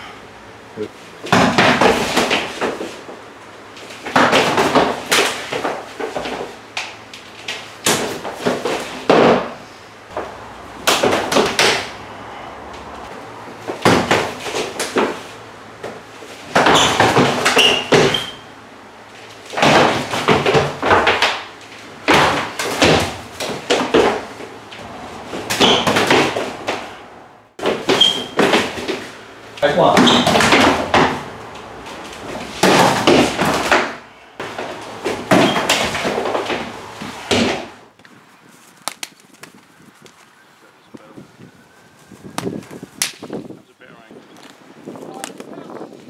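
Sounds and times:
feet stamping on wooden floor: 7.5 - 18.3, 19.5 - 27.0, 27.6 - 29.2, 29.8 - 37.7
hands slapping and thudding: 10.1 - 12.0, 38.8 - 40.2, 42.3 - 43.4.

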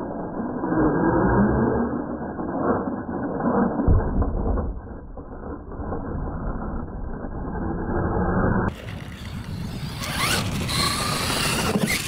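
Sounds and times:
electric motor whirring: 8.7 - 12.0.

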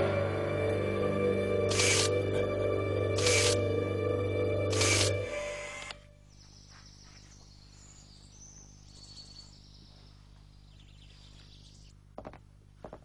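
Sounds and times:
faint birds chirping: 5.5 - 12.7.

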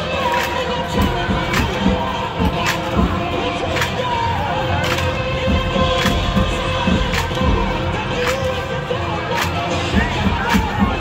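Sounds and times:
crowd chatter: 0.0 - 11.0
marching band music: 0.0 - 11.0.

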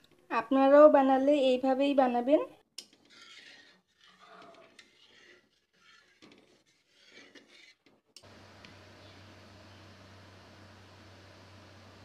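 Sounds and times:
metal spatula scraping a pan: 2.8 - 8.0
faint hiss with low hum: 8.3 - 12.0.

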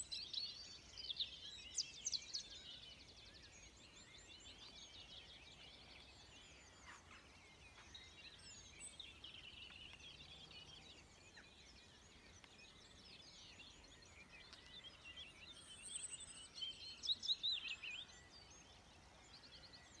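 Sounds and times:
many songbirds singing: 0.0 - 20.0
nearer bird singing: 0.0 - 20.0.

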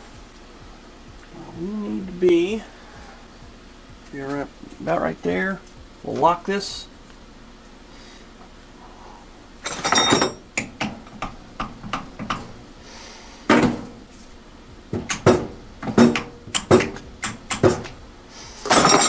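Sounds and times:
metal tools clanking on metal: 9.6 - 10.6, 18.6 - 19.0.

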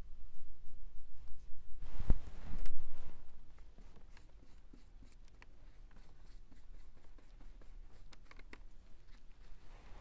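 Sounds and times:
paintbrush scratching on wood: 3.7 - 8.2.

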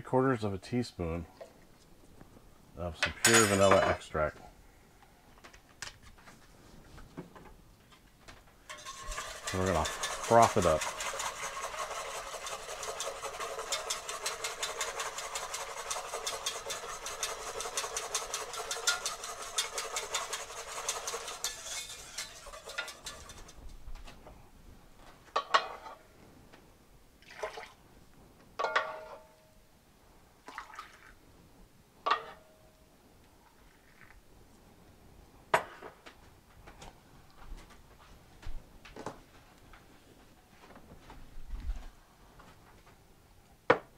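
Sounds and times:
kitchenware clinks and knocks: 3.0 - 4.1, 8.7 - 11.0, 28.6 - 29.3
whisk beating in metal pot: 8.7 - 23.7.

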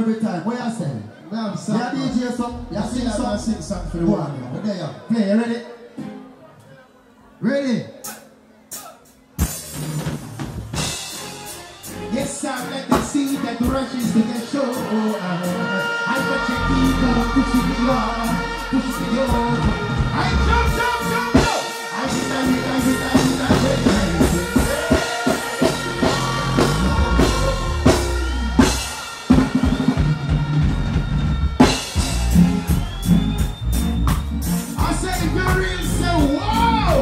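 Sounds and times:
live reggae band: 0.0 - 37.0
bass line: 2.0 - 4.6, 15.5 - 37.0
person singing: 14.7 - 28.0
drum kit hits: 22.8 - 35.6.

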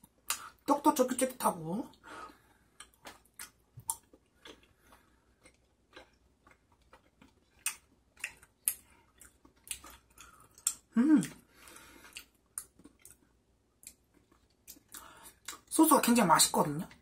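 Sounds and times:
mouth chewing and smacking: 0.0 - 0.7, 1.9 - 15.7.

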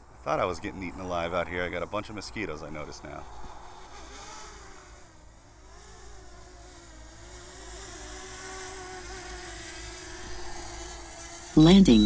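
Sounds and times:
drone propellers buzzing: 0.3 - 12.0.

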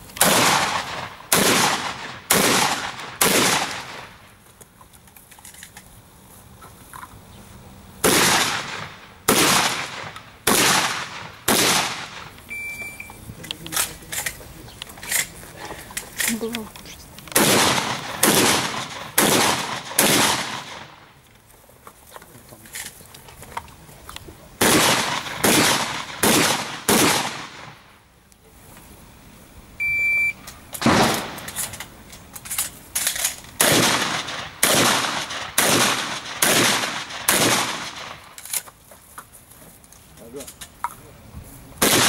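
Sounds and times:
shotgun shots: 0.2 - 4.2, 8.0 - 12.4, 17.3 - 21.1, 24.6 - 27.9, 30.8 - 31.7, 33.6 - 38.4, 41.8 - 42.0
short electronic beep: 12.5 - 13.2, 29.8 - 30.4.

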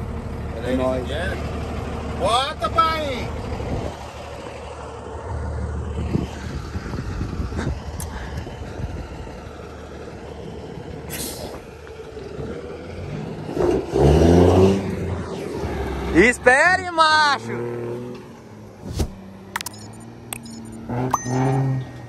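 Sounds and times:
diesel truck engine: 0.0 - 22.0
air brake hiss: 11.1 - 11.6.

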